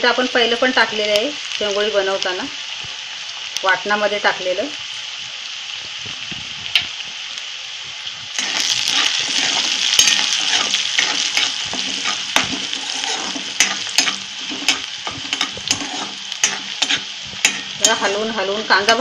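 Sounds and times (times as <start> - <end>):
vegetables sizzling in hot oil: 0.0 - 19.0
spatula scraping wok: 8.4 - 19.0.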